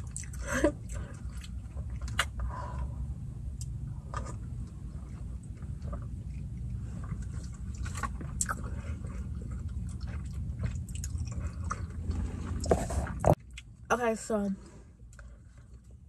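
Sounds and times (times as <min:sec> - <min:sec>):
person sipping and swallowing: 0:03.6 - 0:13.7.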